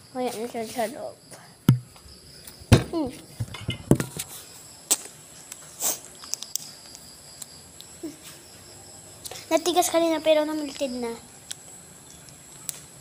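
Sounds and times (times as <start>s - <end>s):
brief hiss: 5.7s - 6.1s.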